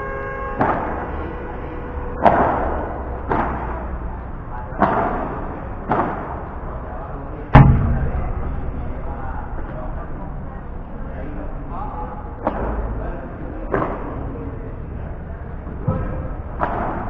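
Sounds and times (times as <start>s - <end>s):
padel ball hits with echo: 7.6s - 10.6s.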